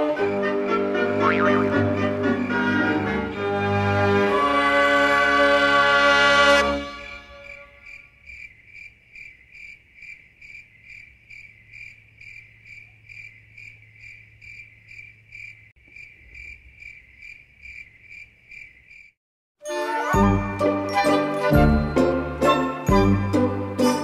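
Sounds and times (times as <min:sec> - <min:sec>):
cricket chirping: 0:07.4 - 0:19.2.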